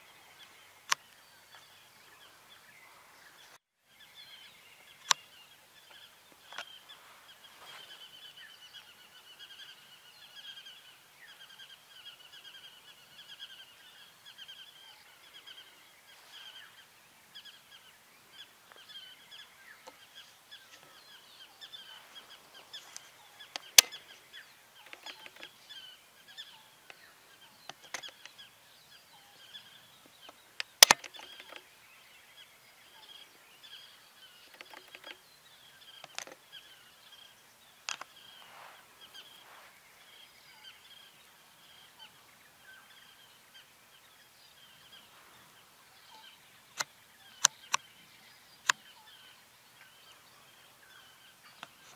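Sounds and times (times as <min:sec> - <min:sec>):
small birds chirping: 0:00.0 - 0:51.9
sharp clicks: 0:22.9 - 0:24.2, 0:24.8 - 0:25.6, 0:26.8 - 0:28.4, 0:30.1 - 0:31.7, 0:34.4 - 0:35.2, 0:35.9 - 0:36.4, 0:37.8 - 0:38.4, 0:46.7 - 0:47.9.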